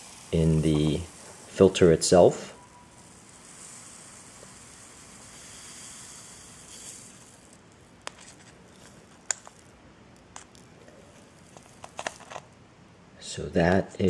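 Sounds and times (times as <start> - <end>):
granules pouring into plastic cup: 0.0 - 12.6
plastic clicks: 11.5 - 12.5.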